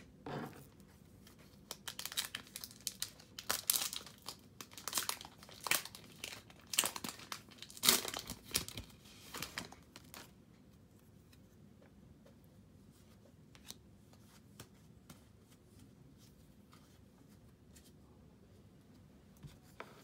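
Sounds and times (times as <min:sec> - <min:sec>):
crinkling and rustling: 0:00.4 - 0:10.4.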